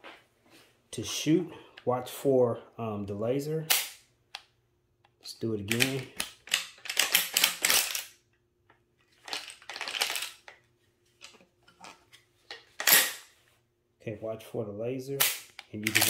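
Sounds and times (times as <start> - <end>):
firing pin snap: 3.7 - 4.4.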